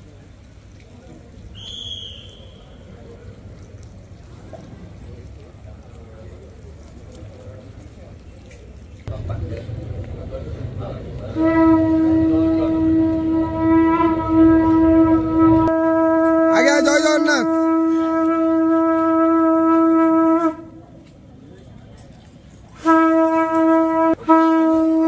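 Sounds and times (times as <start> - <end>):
conch shell blown: 11.3 - 20.9, 22.7 - 25.0.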